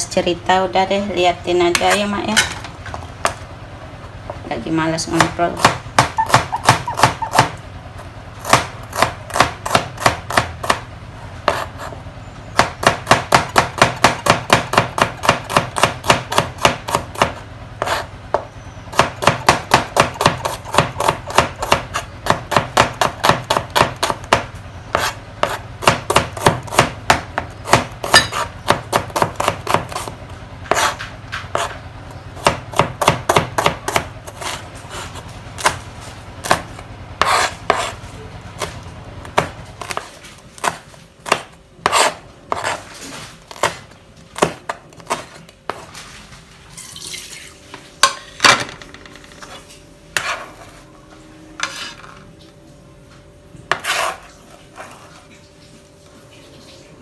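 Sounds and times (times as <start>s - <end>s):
knife slicing on cutting board: 37.2s - 38.0s, 53.7s - 55.0s.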